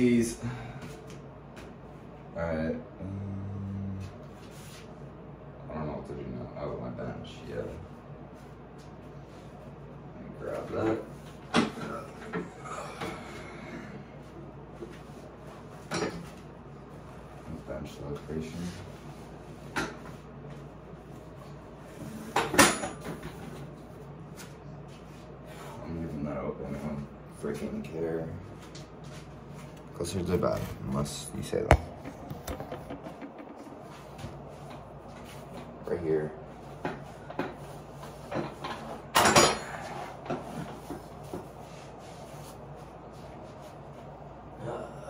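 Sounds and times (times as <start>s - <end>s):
workout bench knocking: 31.8s - 33.8s.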